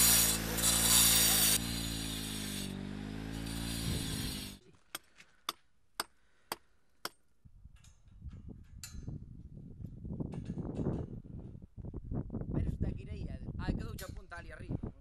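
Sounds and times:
wind rumble on microphone: 7.5s - 15.0s.

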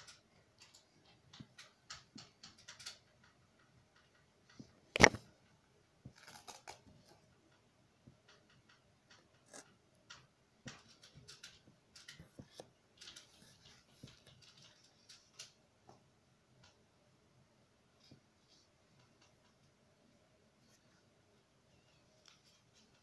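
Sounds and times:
felt toy pieces clicking and rustling: 0.0s - 5.3s, 6.1s - 7.6s, 8.2s - 15.6s.

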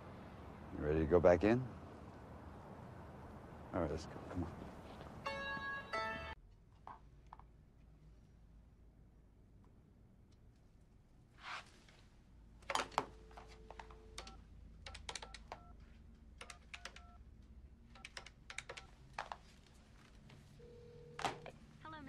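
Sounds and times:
telephone line ringing: 5.2s - 6.4s, 20.6s - 21.6s.

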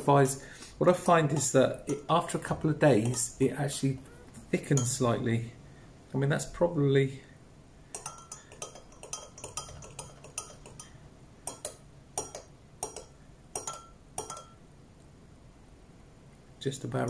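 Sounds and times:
metal spoon clinking in glass jug: 3.0s - 3.3s, 7.9s - 14.6s.

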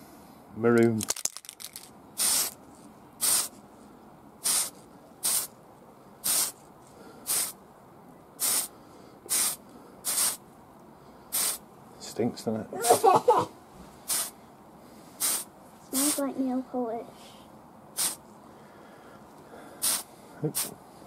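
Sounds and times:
aerosol spray can hissing: 2.2s - 2.6s, 3.2s - 3.5s, 4.4s - 5.5s, 6.2s - 6.6s, 7.3s - 7.6s, 8.4s - 8.7s, 9.3s - 10.4s, 11.3s - 11.6s, 14.1s - 14.3s, 15.2s - 16.2s, 18.0s - 18.2s, 19.8s - 20.7s.

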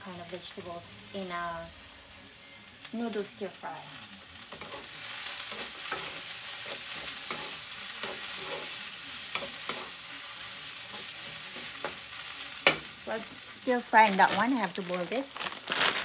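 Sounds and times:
vegetables sizzling in a frying pan: 0.0s - 16.0s
wooden spatula scraping a pan: 4.5s - 10.1s.

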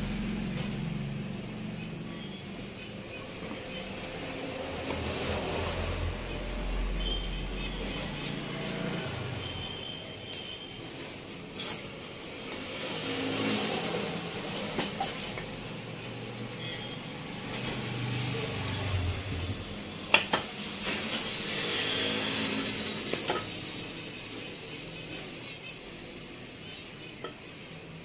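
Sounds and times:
metal clinks and scrapes: 20.8s - 25.3s.

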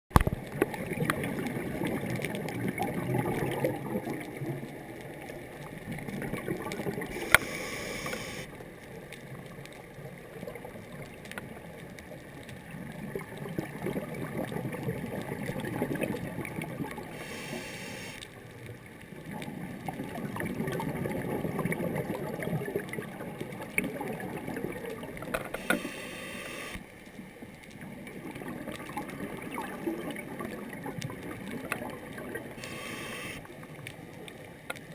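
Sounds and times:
bubbling exhaust underwater: 0.1s - 8.6s, 12.7s - 18.5s, 19.1s - 26.9s, 27.8s - 33.8s
regulator hissing inhales: 7.1s - 8.5s, 17.1s - 18.2s, 25.6s - 26.8s, 32.6s - 33.4s.

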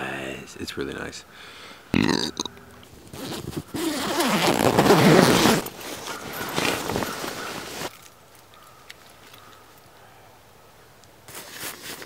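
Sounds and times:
sleeping bag zipper opening: 3.0s - 7.9s.

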